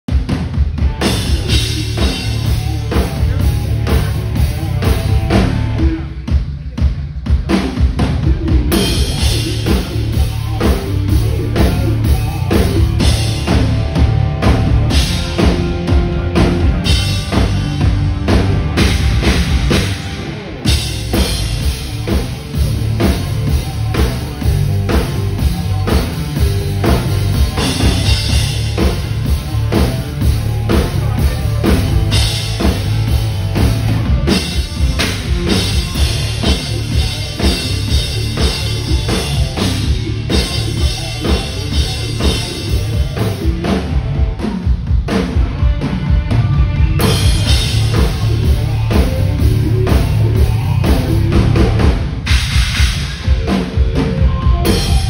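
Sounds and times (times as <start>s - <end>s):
rock drum kit solo: 0.1s - 55.0s.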